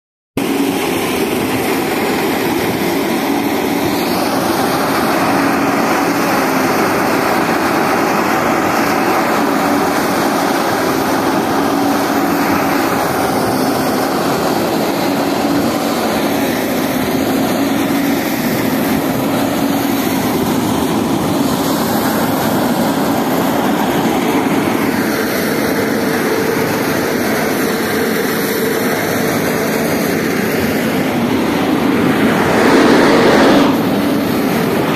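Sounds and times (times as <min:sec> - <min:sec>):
straw blower droning: 0:00.4 - 0:34.9.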